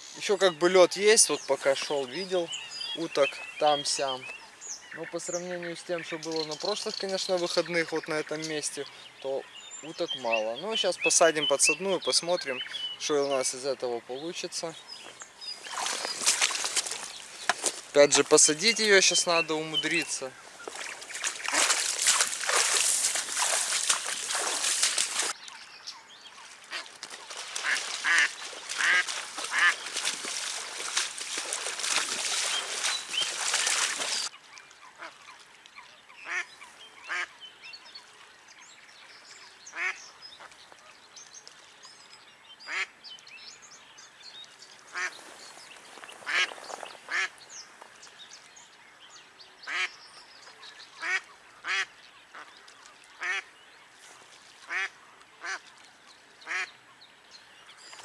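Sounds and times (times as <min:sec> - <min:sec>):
waders splashing through water: 0:15.0 - 0:25.4, 0:26.4 - 0:35.6, 0:44.9 - 0:47.4, 0:50.5 - 0:56.7
duck quacking: 0:27.6 - 0:29.8, 0:51.0 - 0:52.5, 0:54.7 - 0:55.6.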